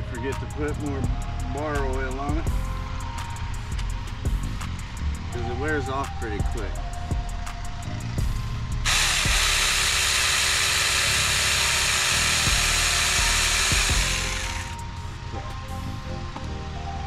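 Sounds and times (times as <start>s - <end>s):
mini chainsaw cutting a stalk: 8.9s - 14.8s.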